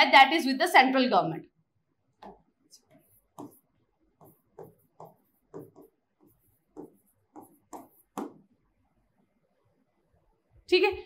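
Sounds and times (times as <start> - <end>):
pen tapping and scratching on screen: 2.2 - 8.6.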